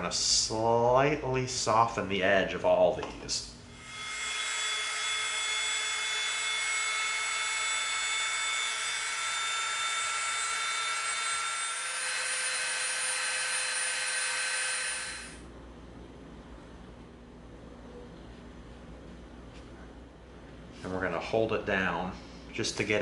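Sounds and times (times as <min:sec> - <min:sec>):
rotary tool whining: 0:03.8 - 0:15.4.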